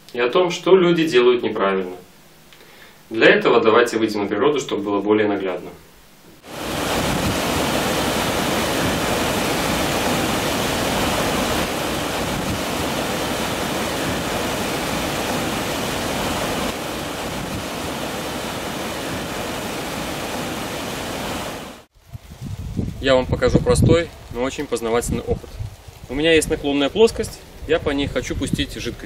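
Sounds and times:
water rushing over weir: 6.4 - 21.9.

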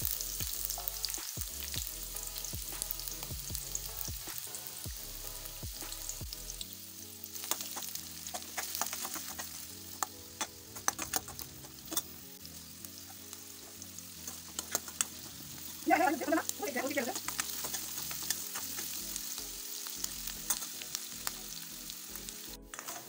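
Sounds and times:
onions sizzling in oil: 0.0 - 23.0
ladle scraping a pan: 14.2 - 15.8.

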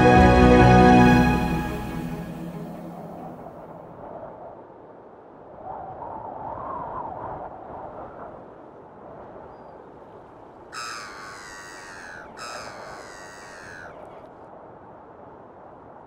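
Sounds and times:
large bird harsh calls: 10.8 - 14.0.

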